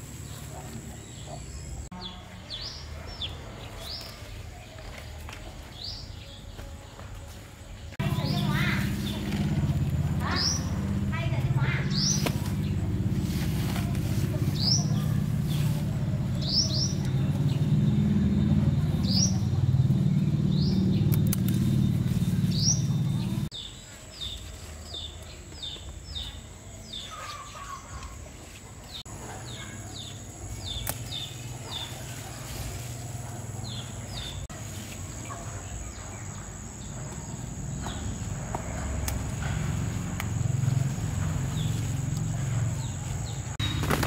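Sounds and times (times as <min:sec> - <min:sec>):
small birds chirping: 0:07.8 - 0:44.0
loud low rumble: 0:08.0 - 0:23.5.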